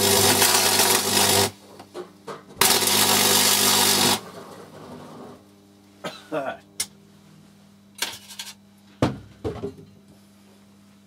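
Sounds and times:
crackling buzzing electric arc: 0.0 - 1.7, 2.6 - 5.2
faint electrical hum: 0.0 - 11.0.

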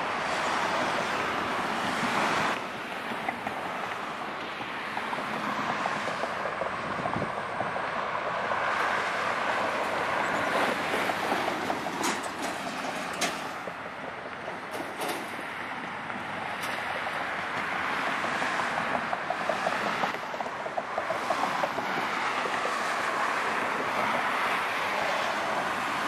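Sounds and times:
cars passing: 0.0 - 26.0.

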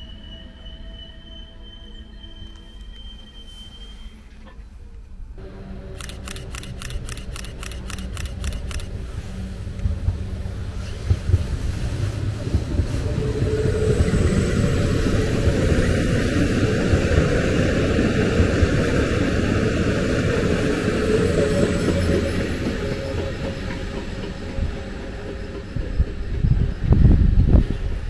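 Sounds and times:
train wheels rumbling: 5.4 - 28.0
quick clicks: 6.0 - 8.9.

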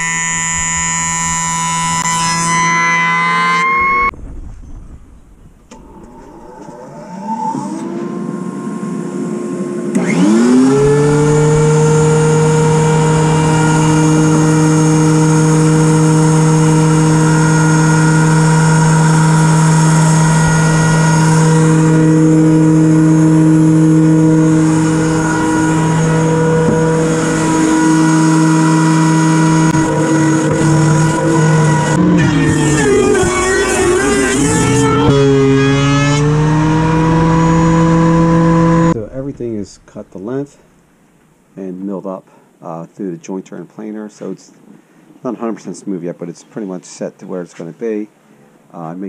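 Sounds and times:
planer motor whining: 0.0 - 4.1, 5.7 - 39.0
pitched machine sound: 5.8 - 40.1.

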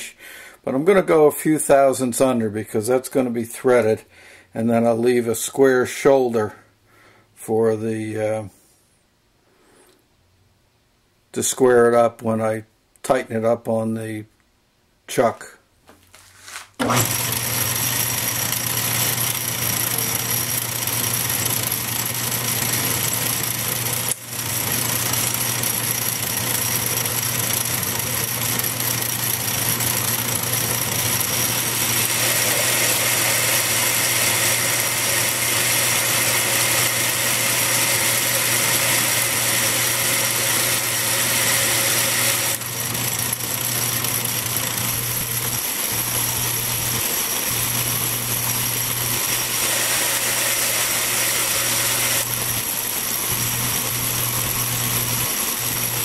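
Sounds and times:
metal lathe running: 16.8 - 56.0.

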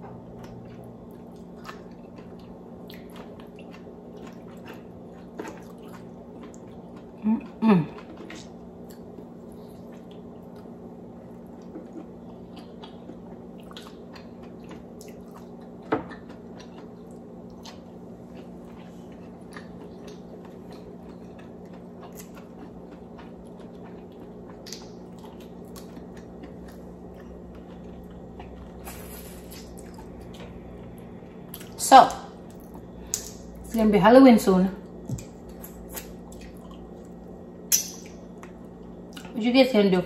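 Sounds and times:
steady low hum: 0.0 - 40.0
wet chewing and lip smacks: 11.5 - 30.6, 35.0 - 39.4.

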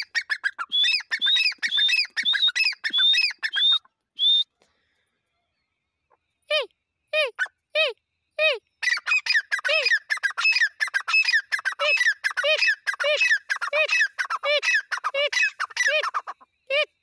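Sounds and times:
birds calling harshly: 0.0 - 3.9, 8.6 - 17.0.

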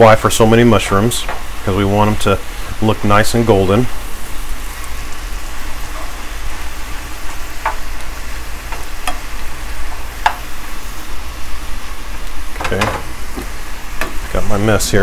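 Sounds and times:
mushrooms sizzling in butter: 0.0 - 15.0
spoon knocking against pan: 7.6 - 7.9, 8.7 - 9.2, 10.2 - 10.5.

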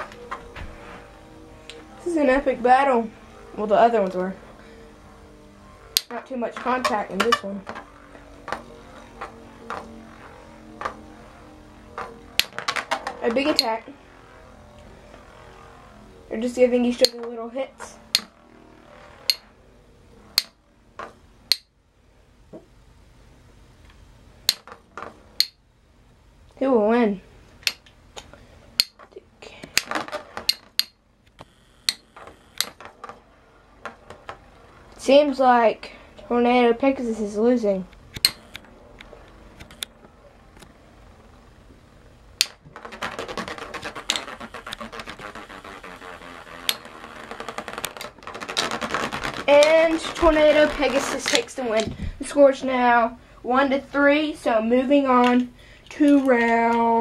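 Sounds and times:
spinning tops clacking: 3.6 - 19.5, 27.6 - 29.1, 29.7 - 31.0, 42.4 - 51.9
sharp clack: 27.6 - 29.1, 29.7 - 33.2.

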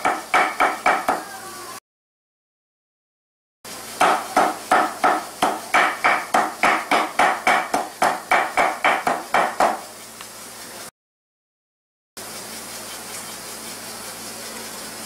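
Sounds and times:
knife chopping meat on wooden block: 0.0 - 1.2, 4.0 - 9.8.

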